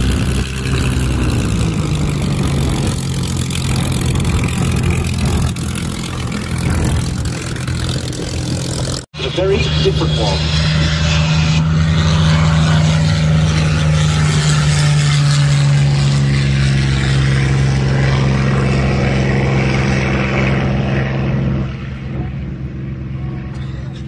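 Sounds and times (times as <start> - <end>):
propeller plane engine droning: 0.0 - 24.0.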